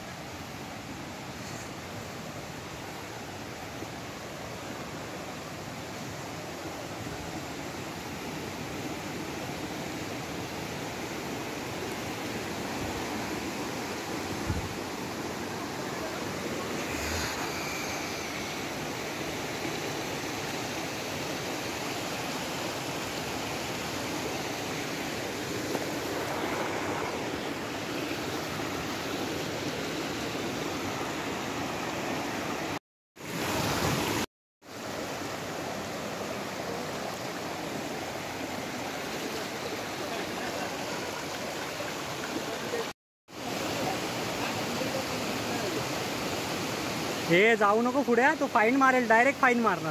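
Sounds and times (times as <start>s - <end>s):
stream rushing over rocks: 0.0s - 49.9s.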